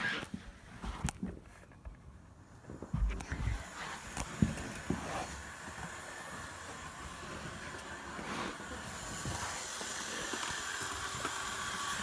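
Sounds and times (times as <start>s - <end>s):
model train motor whirring: 3.5s - 12.0s.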